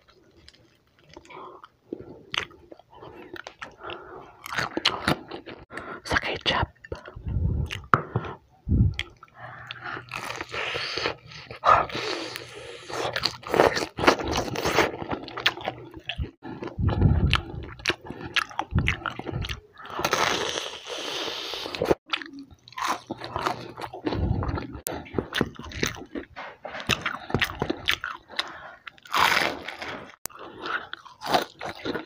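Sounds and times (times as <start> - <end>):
person chewing: 0.0 - 5.8, 6.8 - 32.0
crunching fried chicken: 26.9 - 32.0.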